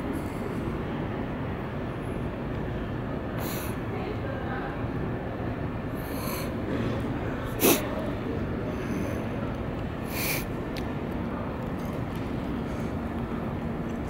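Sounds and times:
low rumble of city ambience: 0.0 - 14.0.

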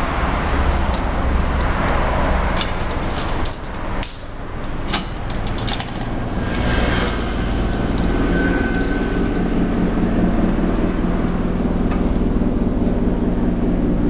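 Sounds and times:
low mechanical hum: 0.0 - 14.0
steel chain clinking and rattling: 0.4 - 10.1.

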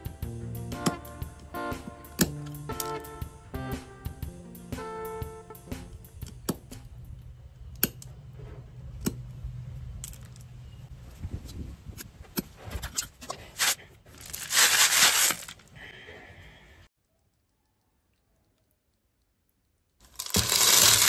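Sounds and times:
snails rattling in plastic colander: 20.0 - 21.0.

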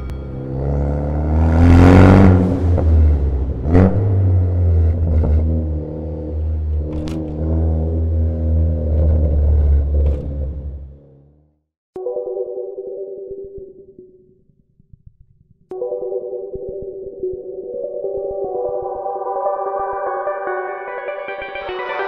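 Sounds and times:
car engine revving: 0.0 - 11.6.

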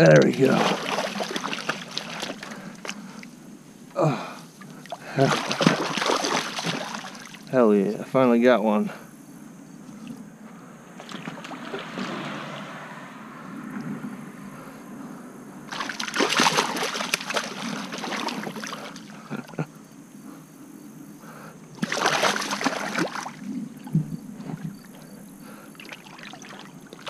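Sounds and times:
water rushing: 0.0 - 3.0, 4.7 - 7.8, 15.7 - 19.1, 21.8 - 23.9, 25.7 - 27.0
water splashing: 0.0 - 3.3, 4.6 - 7.6, 11.0 - 13.1, 15.7 - 19.6, 21.7 - 27.0.

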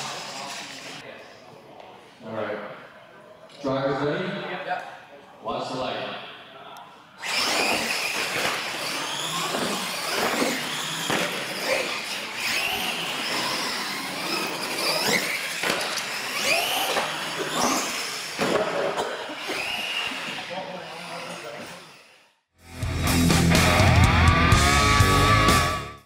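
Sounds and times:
toy truck motors whining: 0.0 - 1.0, 7.2 - 18.6, 19.2 - 22.4
tyres squealing on concrete: 7.2 - 18.5, 19.2 - 22.2.

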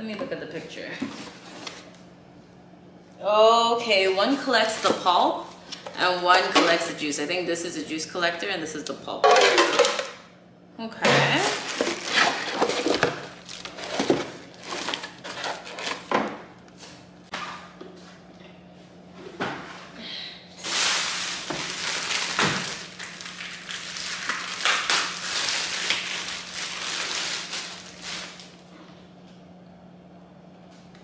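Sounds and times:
plastic bags crinkling: 11.3 - 16.1, 20.6 - 28.7.

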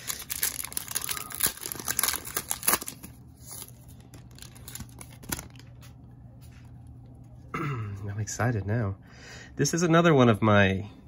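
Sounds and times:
plastic wrapper tearing and crinkling: 0.0 - 5.9.

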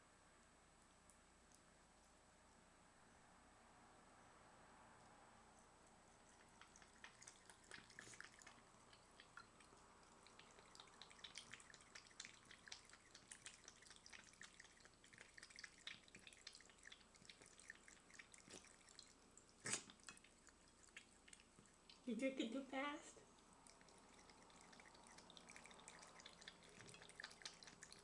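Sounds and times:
cat lapping water: 5.8 - 22.3, 23.2 - 28.0
water trickling from faucet: 6.2 - 28.0.

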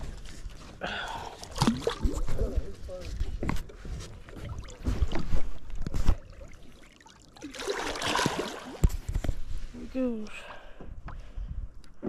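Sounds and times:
fish splashing in water: 6.2 - 8.9.

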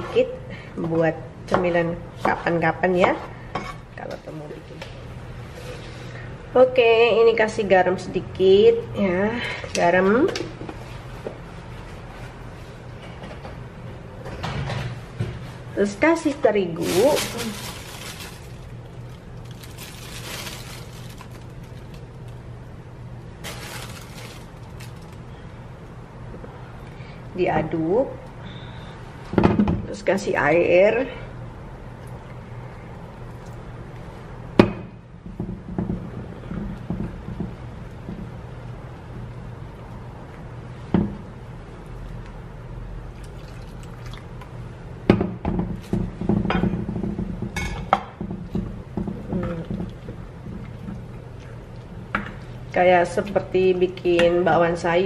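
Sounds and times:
steady low hum: 0.0 - 55.0
plastic flour bag rustling: 16.7 - 22.4, 23.4 - 25.4.

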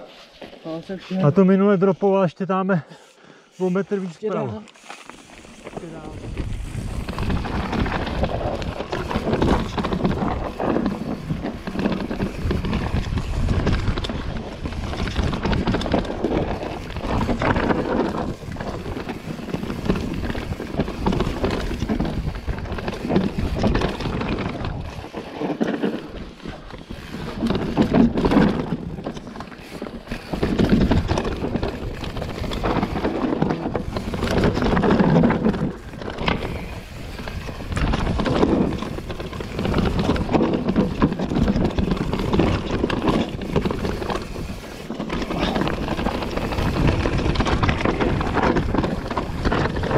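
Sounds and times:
bike tyres on dirt: 0.0 - 49.9
bike knocking and rattling: 4.8 - 49.9
wind buffeting microphone: 5.5 - 25.3, 26.0 - 49.9.

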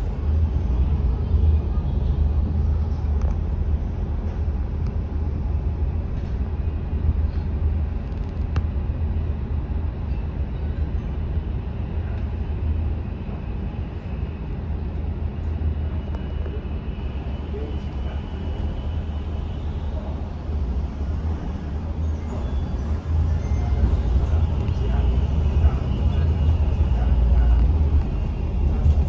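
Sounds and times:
vehicle road and engine noise: 0.0 - 29.0.

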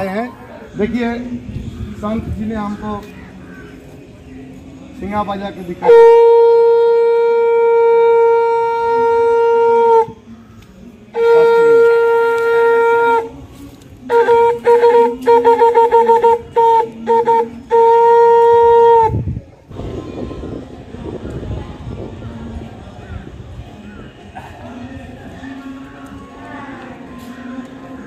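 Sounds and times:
curved horn trumpet blasts: 5.8 - 10.2, 11.1 - 13.4, 14.0 - 19.3.

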